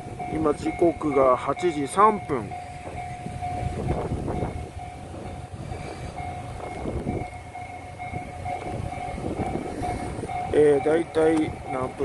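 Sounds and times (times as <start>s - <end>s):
diesel railcar rumbling: 0.0s - 12.0s
steady high tone: 0.0s - 12.0s
wind buffeting microphone: 0.0s - 12.0s.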